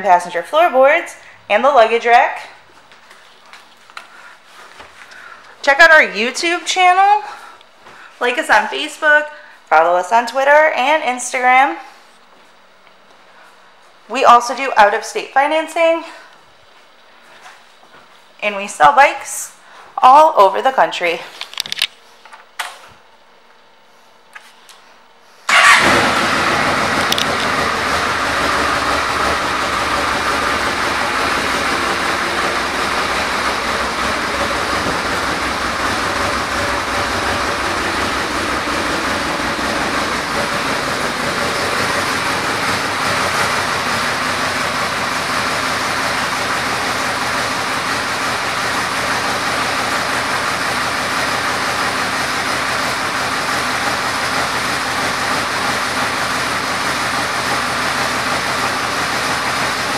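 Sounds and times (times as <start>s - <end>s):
motorcycle engine starting and idling: 25.5s - 59.9s.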